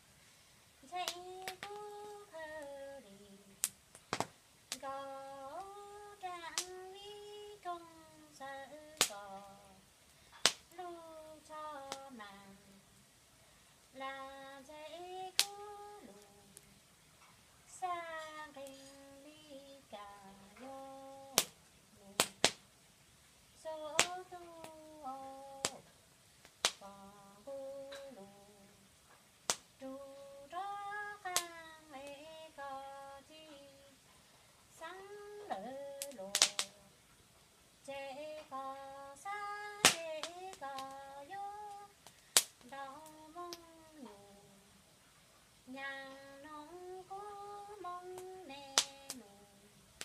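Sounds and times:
woman singing long notes: 0.8s - 3.7s, 4.7s - 9.9s, 10.7s - 13.0s, 13.9s - 16.8s, 17.7s - 22.6s, 23.6s - 26.0s, 26.7s - 28.9s, 29.8s - 34.0s, 34.7s - 37.0s, 37.8s - 42.0s, 42.6s - 44.8s, 45.6s - 49.8s
wood fire popping: 1.0s - 2.8s, 3.4s - 8.0s, 8.7s - 11.0s, 15.0s - 17.4s, 20.6s - 23.1s, 23.7s - 32.3s, 35.4s - 37.4s, 38.6s - 44.2s, 47.3s - 49.3s
sharp cracks: 3.6s - 5.8s, 9.0s - 9.5s, 10.3s - 10.8s, 15.4s - 16.7s, 21.3s - 21.6s, 22.2s - 22.7s, 23.9s - 24.9s, 26.4s - 26.9s, 29.4s - 29.8s, 30.6s - 32.2s, 35.9s - 36.8s, 39.2s - 43.8s, 48.1s - 49.3s.

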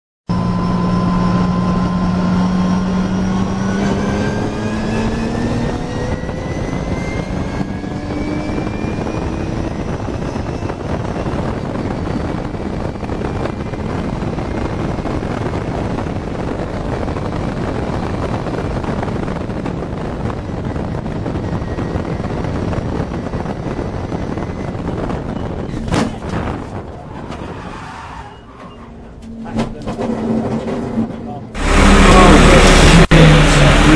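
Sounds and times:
race car engine: 0.3s - 33.9s
road and wind noise: 0.3s - 33.9s.

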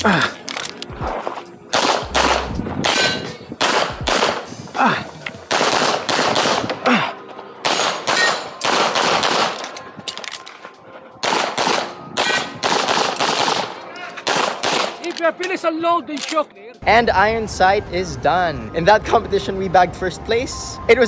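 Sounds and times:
pistol shots: 1.7s - 4.5s, 5.5s - 6.8s, 7.6s - 9.8s, 11.2s - 15.1s.

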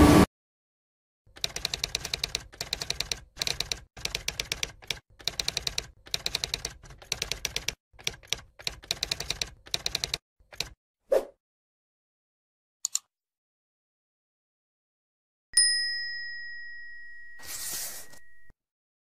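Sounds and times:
typewriter keystroke clicks: 1.3s - 10.8s, 12.8s - 13.1s.

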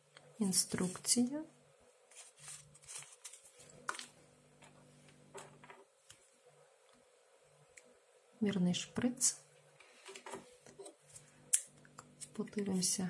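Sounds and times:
paper leaflet rustling: 2.1s - 4.2s.

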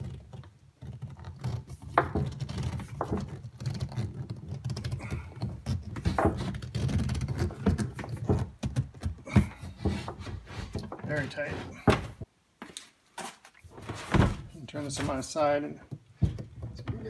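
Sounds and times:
plastic pipe scraping through rubber seal: 0.0s - 12.2s.

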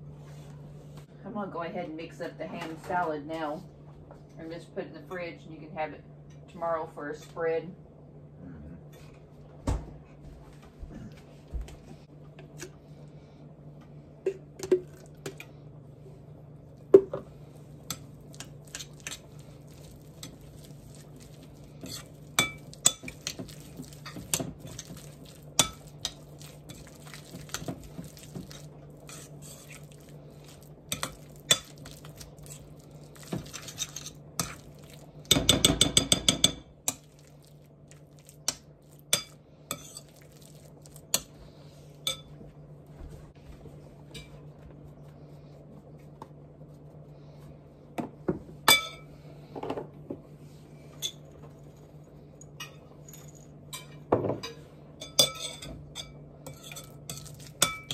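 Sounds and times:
steady low hum: 0.0s - 57.9s.

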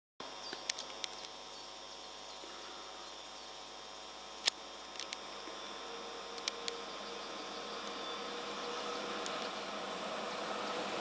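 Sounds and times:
insects chirring: 0.2s - 10.7s
faint steady hum: 0.2s - 11.0s
sharp clicks: 0.5s - 1.4s, 4.4s - 5.2s, 6.4s - 6.8s
distant electric train approaching: 5.4s - 11.0s.

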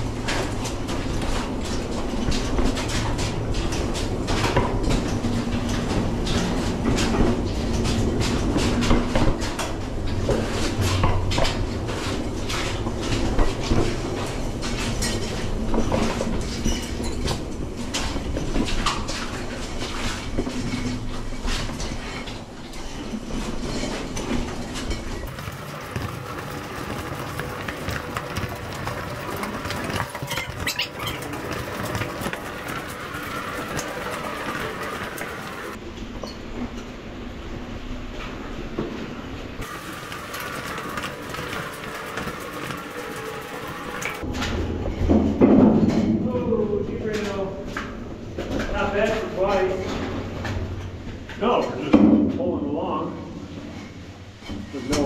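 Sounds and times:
cart wheels rattling on rails: 0.0s - 35.8s, 39.6s - 46.2s.

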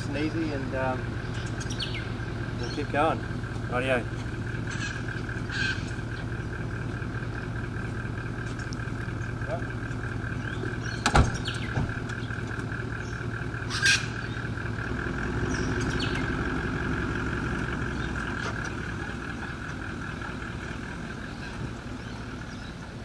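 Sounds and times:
vehicle engine running: 0.0s - 23.0s
sharp clunk: 11.0s - 12.0s.

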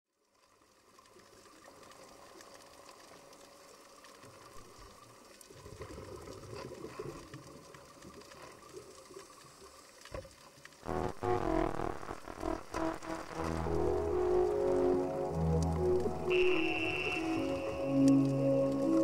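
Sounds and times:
light crackling: 10.6s - 19.0s.

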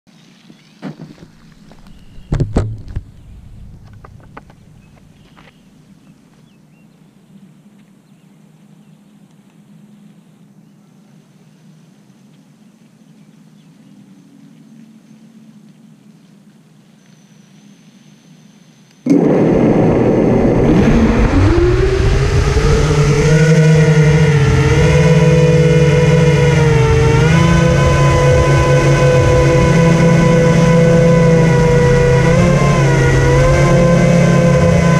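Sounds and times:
drone motors whining: 1.4s - 5.6s, 19.1s - 34.9s.

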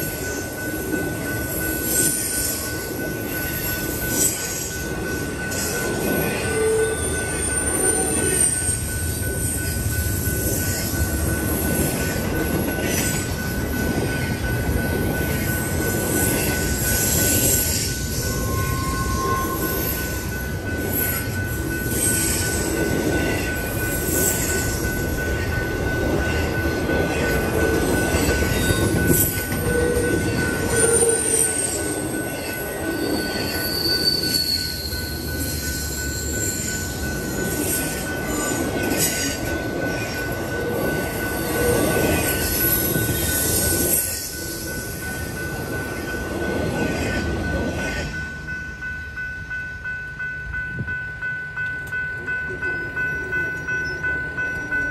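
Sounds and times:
train wheels rumbling on rails: 0.0s - 54.9s
high-pitched wheel squeals: 17.0s - 20.2s, 33.0s - 36.9s.

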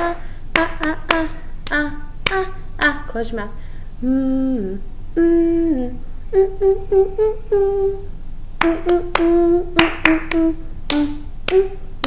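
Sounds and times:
woman humming a tune: 0.0s - 3.1s, 4.0s - 12.0s
hand claps: 0.5s - 3.0s, 8.6s - 11.8s.

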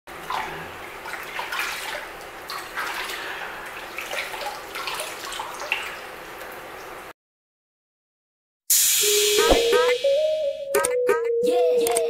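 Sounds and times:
water splashing in plastic basin: 0.2s - 6.1s.

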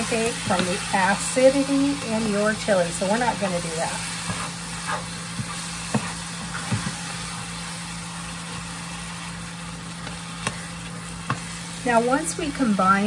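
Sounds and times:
meat frying in a skillet: 0.0s - 13.0s
metal spoon stirring and tapping pan: 10.0s - 11.6s.

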